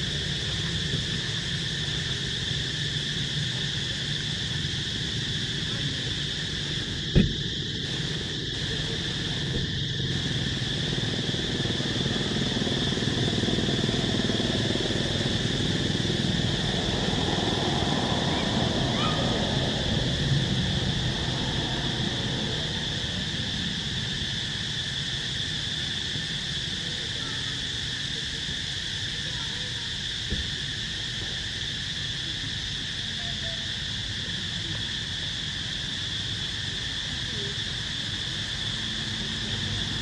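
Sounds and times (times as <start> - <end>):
insect chorus buzzing: 0.0 - 40.0
sharp thump: 7.1 - 7.4.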